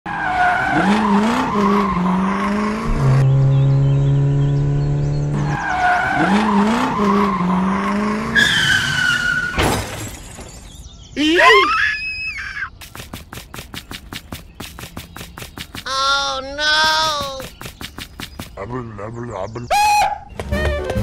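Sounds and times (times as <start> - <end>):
car engine revving: 0.1 - 9.3
tires screeching: 0.1 - 10.2.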